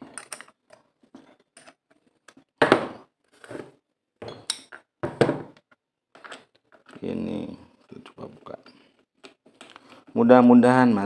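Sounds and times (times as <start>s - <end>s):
tools set down on workbench: 2.6s - 5.6s.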